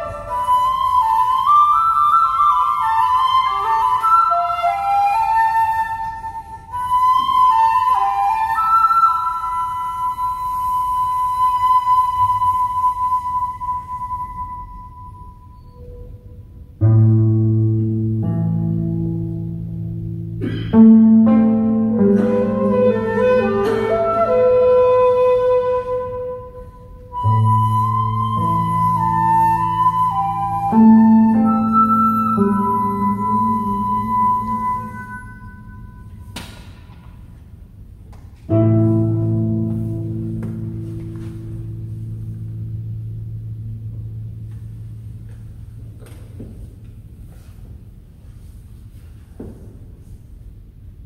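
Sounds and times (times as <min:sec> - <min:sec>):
shakuhachi melody: 0:00.0 - 0:37.3, 0:38.4 - 0:46.3
low plucked koto notes: 0:16.8 - 0:24.6, 0:38.5 - 0:46.0
koto accompanying: 0:16.8 - 0:26.0.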